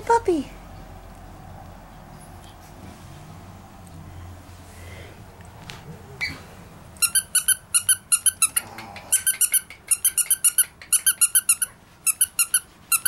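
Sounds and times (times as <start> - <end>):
squeaky toy squeaking: 7.0 - 13.0.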